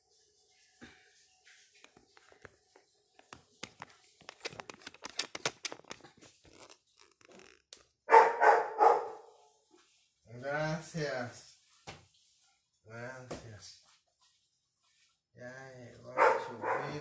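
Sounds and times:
dog barking: 0:08.1 - 0:09.4, 0:16.1 - 0:17.0.

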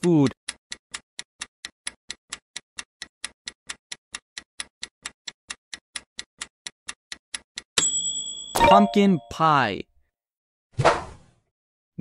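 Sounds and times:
countdown timer ticking: 0:08.6 - 0:09.5.

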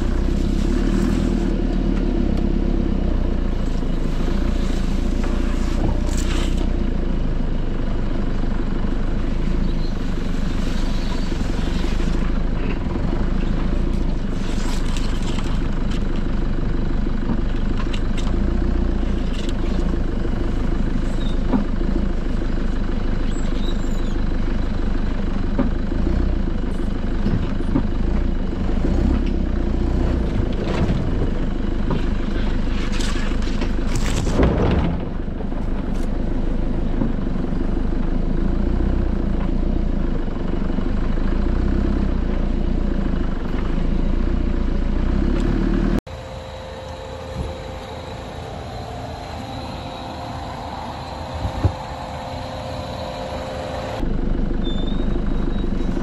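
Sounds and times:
branches scraping bodywork: 0:00.0 - 0:01.7, 0:03.9 - 0:06.7, 0:13.6 - 0:16.3, 0:32.0 - 0:34.6
car engine running: 0:00.0 - 0:56.0.

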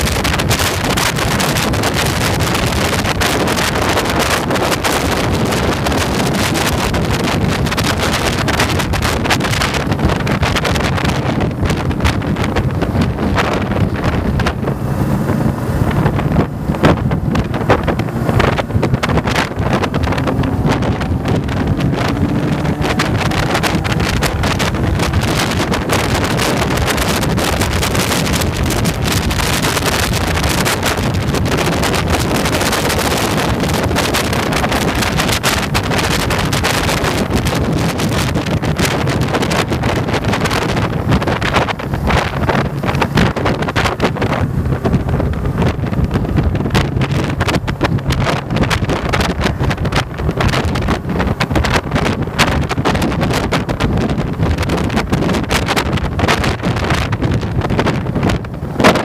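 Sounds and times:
motorcycle engine running: 0:00.0 - 0:59.0
wind buffeting microphone: 0:00.0 - 0:59.0.

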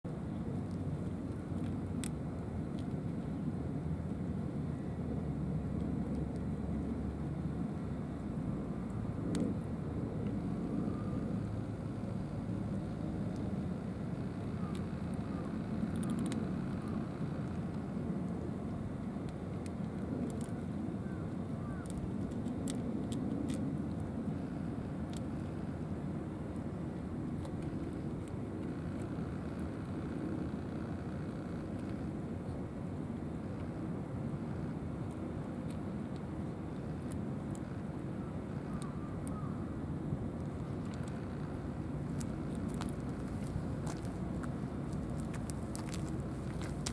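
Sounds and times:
low outdoor rumble: 0:00.0 - 0:46.9
cats crunching dry kibble: 0:15.8 - 0:16.5, 0:21.8 - 0:24.0, 0:42.0 - 0:46.9.

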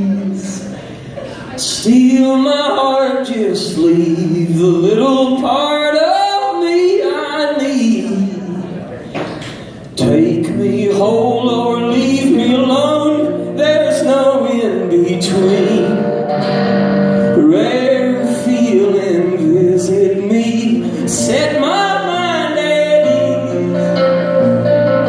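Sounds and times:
man singing folk song: 0:00.0 - 0:00.9, 0:01.5 - 0:08.7, 0:10.0 - 0:25.0
electric guitar chords: 0:10.0 - 0:25.0.

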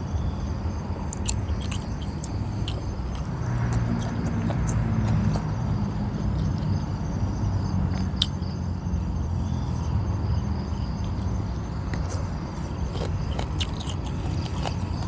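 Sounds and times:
crickets chirping: 0:00.0 - 0:15.0
man chewing and crunching: 0:01.0 - 0:06.8, 0:10.8 - 0:15.0.

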